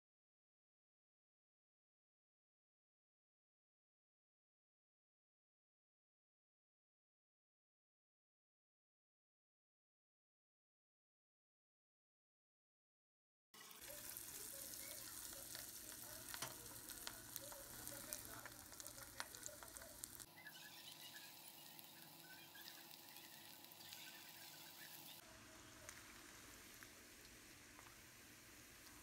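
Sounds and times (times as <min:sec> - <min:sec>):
chicken deep-frying in oil: 0:13.6 - 0:29.0.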